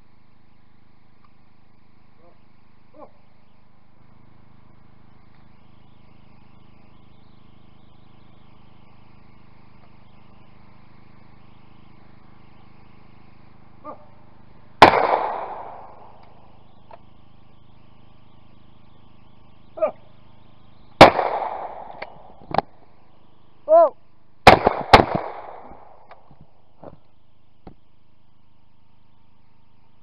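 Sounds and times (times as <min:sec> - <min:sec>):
faint click: 0:01.2 - 0:01.4
shotgun shot: 0:14.8 - 0:16.5, 0:21.0 - 0:22.8, 0:24.4 - 0:26.2.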